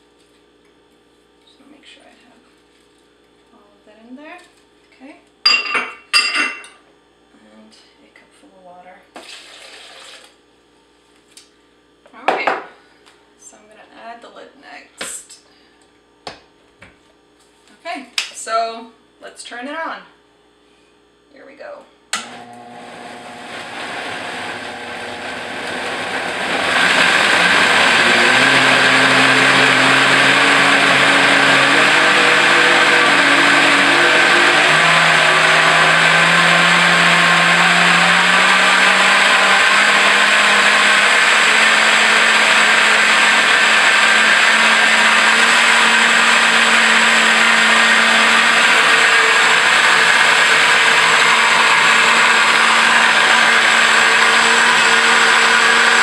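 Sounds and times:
blender motor running: 9.2 - 10.4, 22.2 - 56.0.

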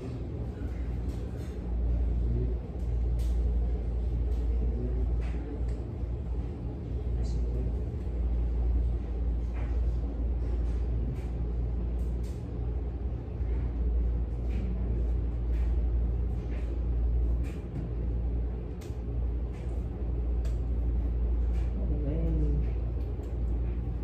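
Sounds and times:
distant men talking: 0.0 - 9.4
low room hum: 0.0 - 24.0.

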